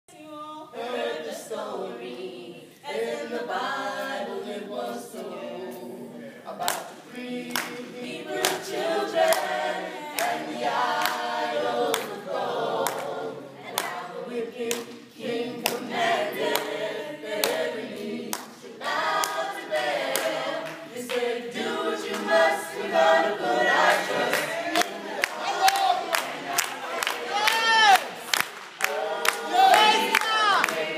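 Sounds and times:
group singing gospel in harmony: 0.2s - 30.9s
handclaps: 6.6s - 7.8s, 8.4s - 9.5s, 10.1s - 10.4s, 11.0s - 11.3s, 12.8s - 13.1s, 13.7s - 14.0s, 14.6s - 15.9s, 16.5s - 16.8s, 17.4s - 17.6s, 18.3s - 21.3s, 23.9s - 30.9s.

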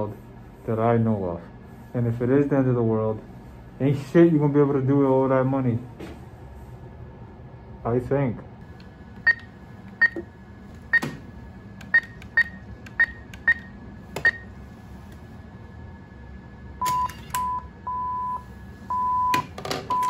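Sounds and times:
lower longer machine beeps: 9.2s - 10.2s, 11.9s - 14.6s, 16.8s - 20.0s
short high keypad beeps: 16.8s - 18.3s.

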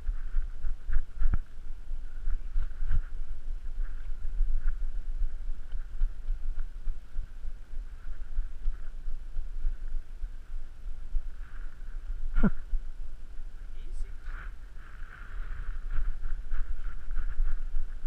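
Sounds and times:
wind rumble on microphone: 0.0s - 18.0s
faint ticks: 3.7s - 12.2s.

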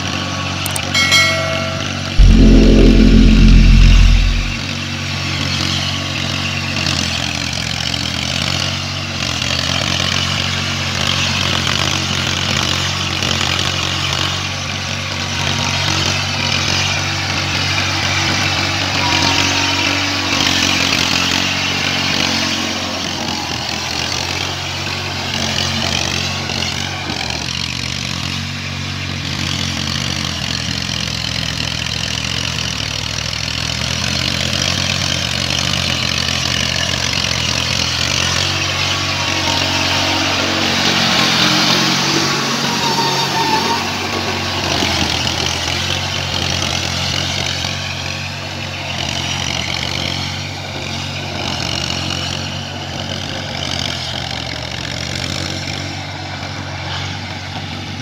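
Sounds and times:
loud low buffet: 0.7s - 4.7s.

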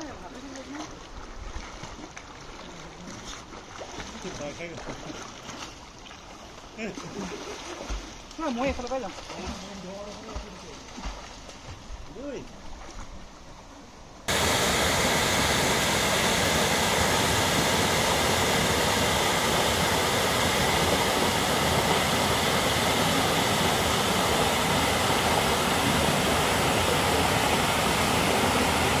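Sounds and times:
waterfall rushing: 14.3s - 29.0s.

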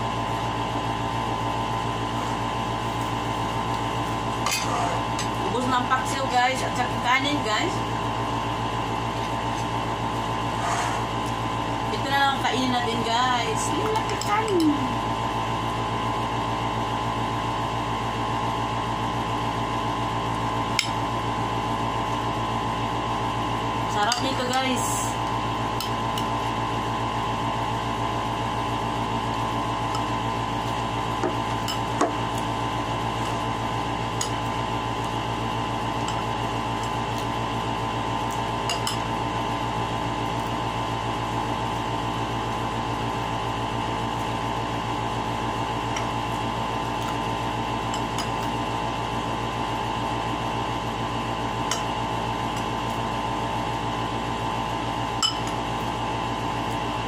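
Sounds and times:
steady mechanical hum: 0.0s - 57.0s
metal spoon scraping ceramic bowl: 4.5s - 5.0s.

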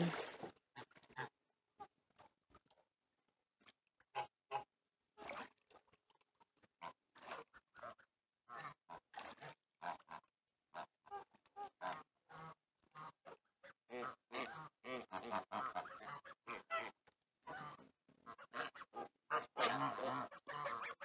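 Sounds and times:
geese honking and gabbling: 13.9s - 21.0s.

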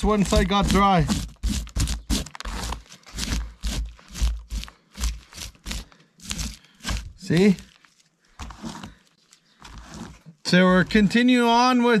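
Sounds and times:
knife scraping fish scales: 0.6s - 7.3s.

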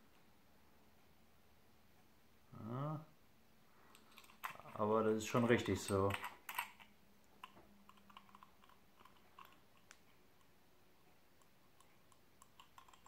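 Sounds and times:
small metal clicks and taps: 5.6s - 10.6s, 11.4s - 13.0s.

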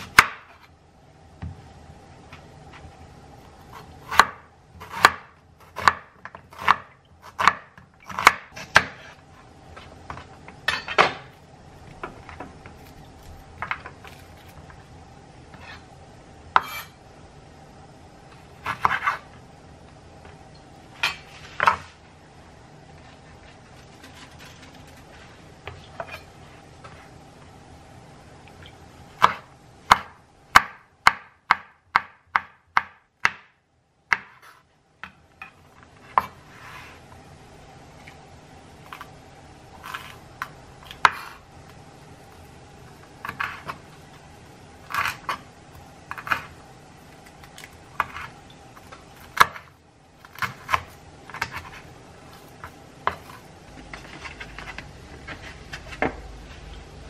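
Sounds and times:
knife chopping on wooden board: 3.8s - 9.1s, 29.2s - 33.5s, 34.1s - 34.6s, 53.0s - 53.4s.

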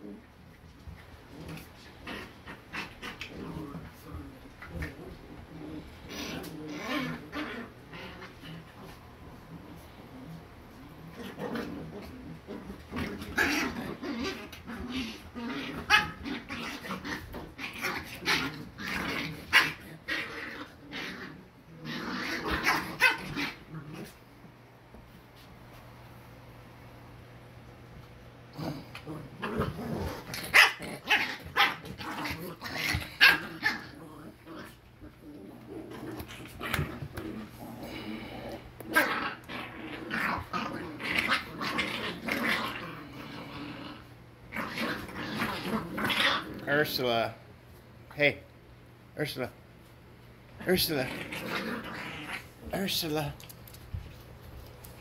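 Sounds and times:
puppies yapping and growling: 11.0s - 24.2s, 28.8s - 43.2s.

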